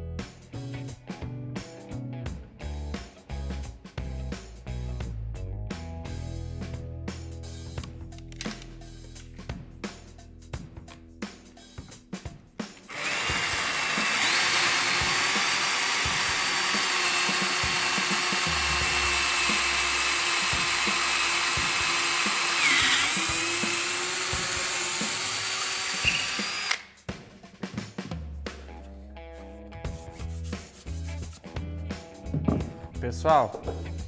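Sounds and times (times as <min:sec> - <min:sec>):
electric drill boring wood: 0:12.9 - 0:26.9.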